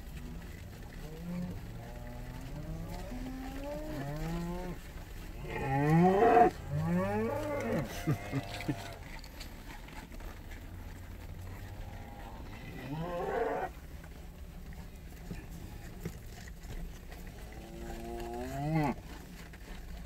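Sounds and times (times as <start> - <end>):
cattle mooing: 1.0 - 4.8, 5.4 - 9.1, 11.6 - 13.8, 17.4 - 19.1.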